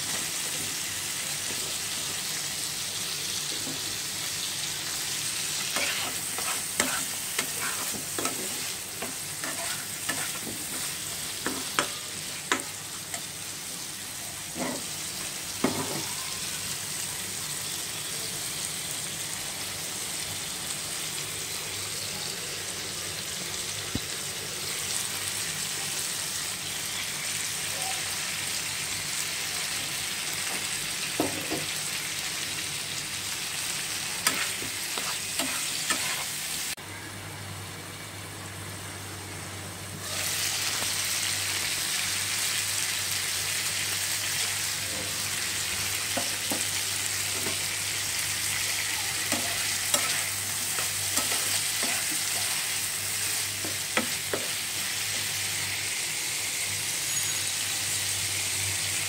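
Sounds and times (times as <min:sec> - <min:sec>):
food sizzling in hot oil: 0:00.0 - 0:36.8, 0:38.2 - 0:59.0
metal spatula scraping a pan: 0:05.6 - 0:11.9, 0:34.2 - 0:36.4, 0:49.3 - 0:52.8.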